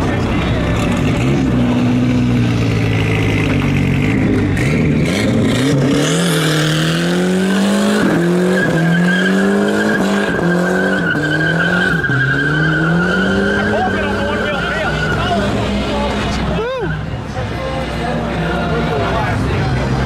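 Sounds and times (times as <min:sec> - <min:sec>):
pickup engine revving: 0:00.0 - 0:17.2
tyres squealing: 0:08.5 - 0:15.7.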